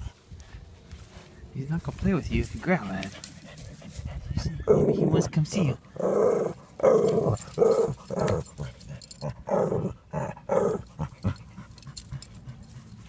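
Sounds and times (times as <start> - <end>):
dog growling: 4.5 - 12.6.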